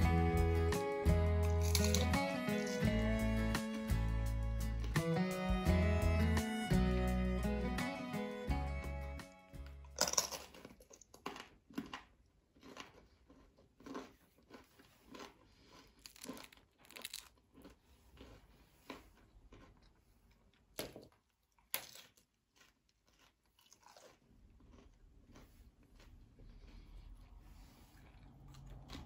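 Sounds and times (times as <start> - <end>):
crisp crust crunching: 1.4 - 2.9, 9.6 - 27.2.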